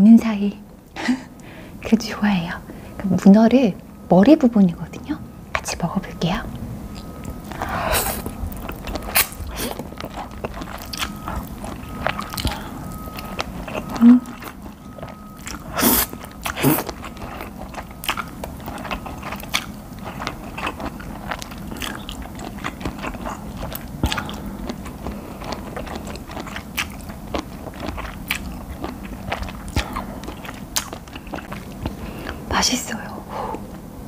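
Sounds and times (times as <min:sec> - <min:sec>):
wet chewing and mouth clicks: 0:06.4 - 0:32.4.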